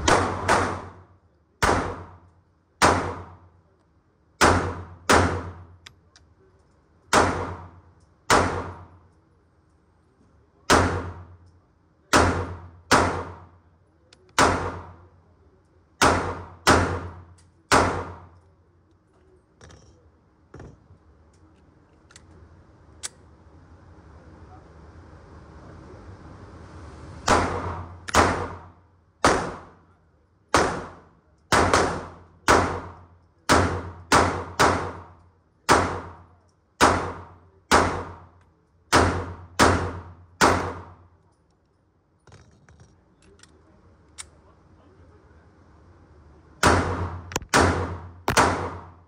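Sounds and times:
pistol shots echoing indoors: 0.0s - 3.5s, 4.4s - 5.8s, 7.1s - 9.0s, 10.6s - 11.5s, 12.1s - 13.6s, 14.3s - 15.1s, 16.0s - 18.4s, 27.2s - 29.9s, 30.5s - 41.1s, 46.6s - 49.0s.

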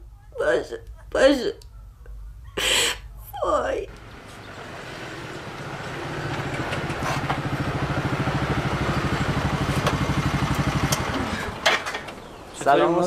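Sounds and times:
motorcycle engine idling: 3.9s - 12.6s.

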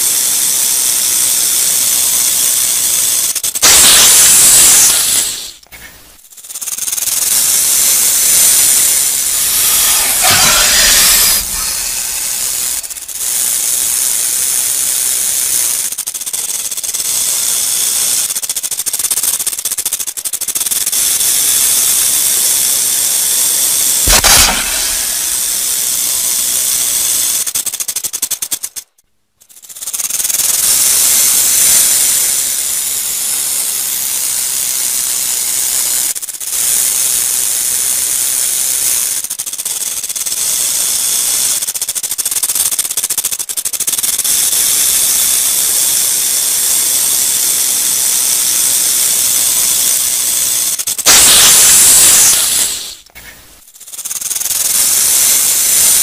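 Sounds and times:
rattlesnake tail rattling: 0.0s - 56.0s.

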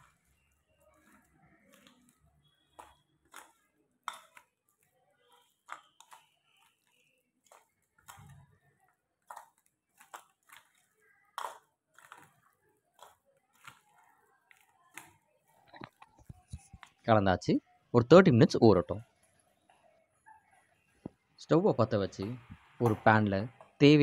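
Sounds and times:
spoon stirring in a steel bowl: 0.0s - 17.0s.

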